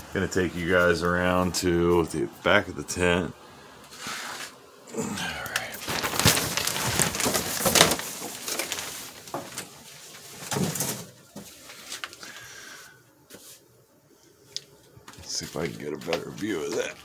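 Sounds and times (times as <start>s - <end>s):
rustling against tent fabric: 3.9s - 4.6s, 5.2s - 13.7s, 15.1s - 17.0s.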